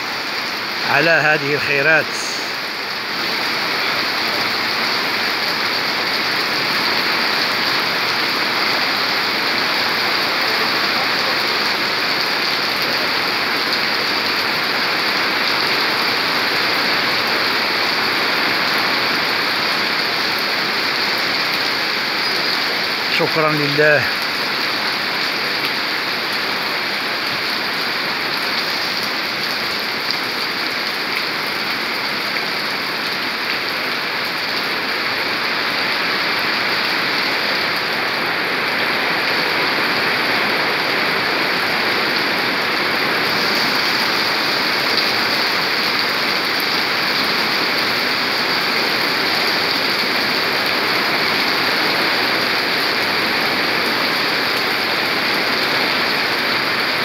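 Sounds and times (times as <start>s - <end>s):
heavy rain on wet pavement: 0.0s - 57.0s.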